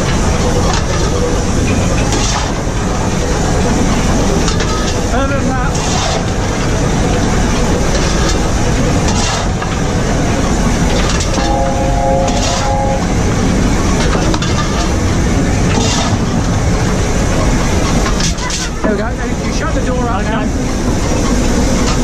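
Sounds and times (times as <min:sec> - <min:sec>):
steam locomotive rumble and clatter: 0:00.0 - 0:22.0
shovel scraping coal: 0:05.7 - 0:06.3, 0:09.1 - 0:09.7
short steady pitched tone: 0:11.1 - 0:14.3.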